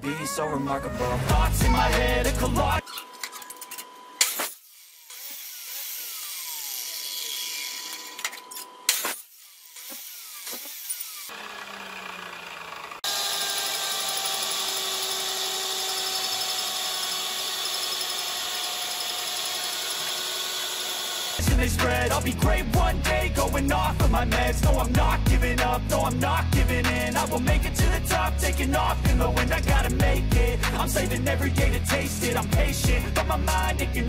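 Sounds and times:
drill press drilling steel: 4.2 - 21.5
cut-off saw cutting steel: 4.2 - 22.2.

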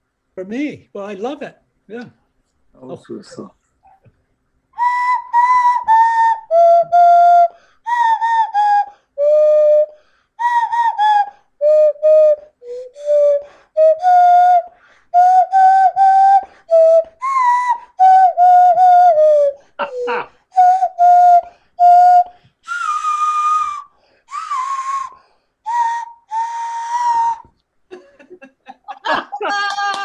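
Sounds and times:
whistle-like tune: 4.8 - 19.7, 20.5 - 27.6.

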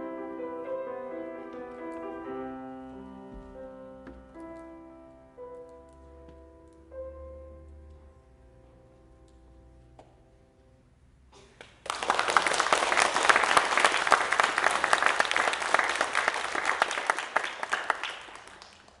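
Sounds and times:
audience applauding: 11.6 - 19.0.

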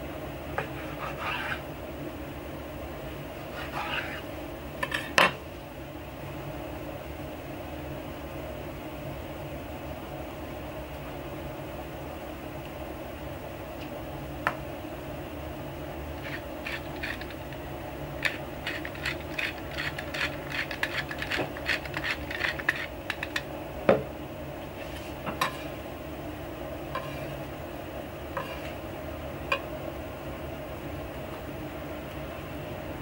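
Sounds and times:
steady low hum: 0.0 - 33.0
pepper grinder ticking: 16.2 - 17.6, 18.2 - 23.5.

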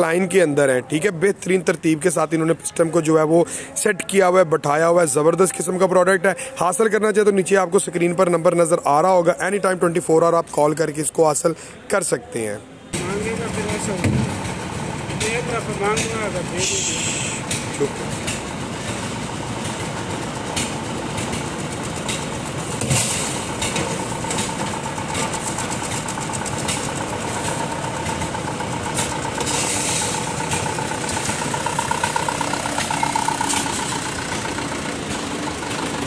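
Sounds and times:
diesel truck engine running: 13.0 - 36.0
engine whine: 13.0 - 36.0.

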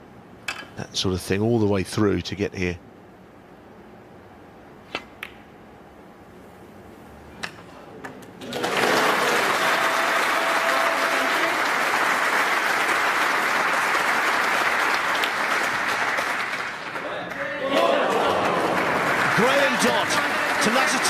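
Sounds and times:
audience applauding: 8.4 - 21.0.

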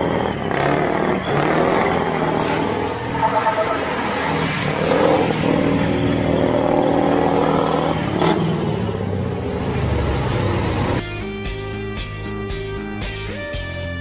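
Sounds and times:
diesel truck engine revving: 0.0 - 11.0
guitar music: 11.0 - 14.0.

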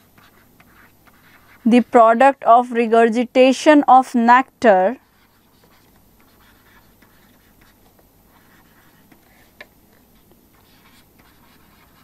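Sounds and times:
pen scratching while writing: 0.0 - 1.9, 5.0 - 12.0.

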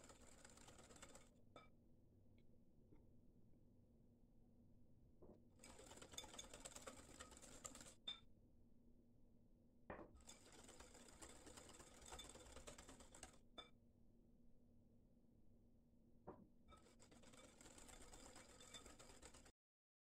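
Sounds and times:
whisk beating batter in bowl: 0.1 - 1.3, 5.6 - 8.0, 10.2 - 13.4, 16.8 - 19.5.

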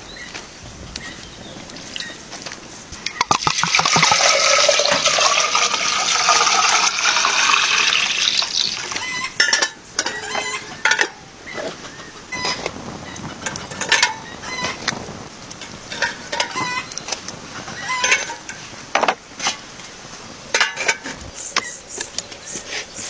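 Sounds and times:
water pouring into metal vessel: 3.1 - 9.5
metal lid clinking: 9.3 - 11.2, 18.0 - 18.6, 20.5 - 21.0.

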